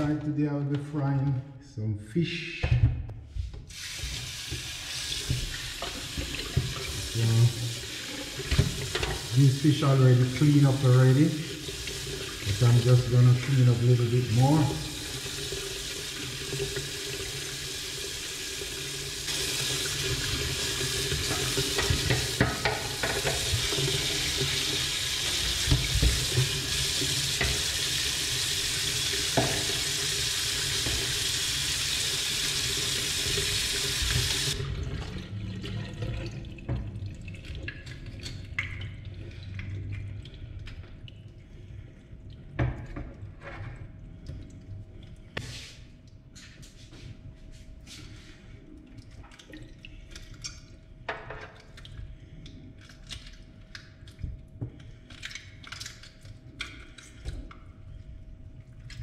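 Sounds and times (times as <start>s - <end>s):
tap water splashing in sink: 3.8s - 17.4s, 18.5s - 41.1s.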